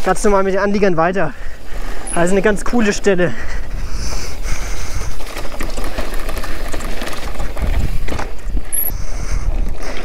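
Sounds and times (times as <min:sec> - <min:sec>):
bike rattling over stones: 0:00.0 - 0:10.0
wind on microphone: 0:03.5 - 0:05.6, 0:06.6 - 0:10.0.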